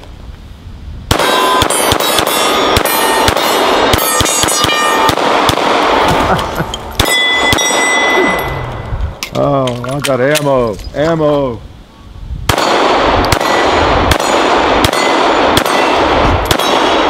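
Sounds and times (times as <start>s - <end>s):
pistol firing rapid shots: 1.1s - 6.1s, 12.5s - 17.0s
steel targets ringing: 1.2s - 5.2s, 7.0s - 8.6s, 14.2s - 16.9s.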